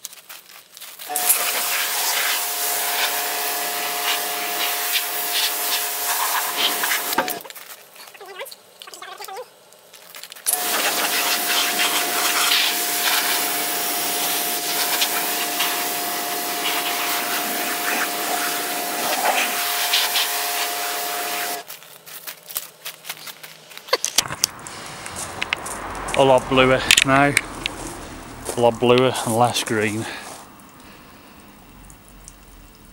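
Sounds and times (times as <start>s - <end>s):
electric cleaning machine running: 1.1s - 7.4s, 10.5s - 21.6s.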